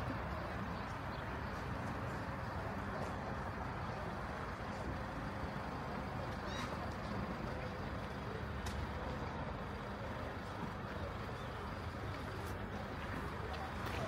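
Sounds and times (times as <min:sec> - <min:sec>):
faint sharp clicks: 0:08.6 - 0:08.9.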